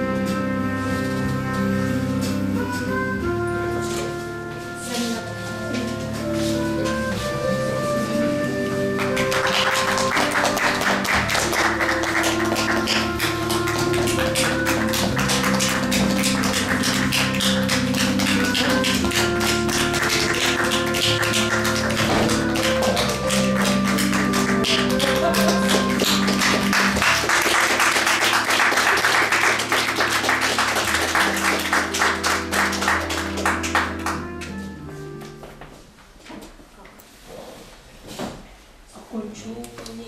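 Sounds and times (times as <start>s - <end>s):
music with held notes: 0.0s - 36.2s
fast hand clapping: 9.0s - 34.2s.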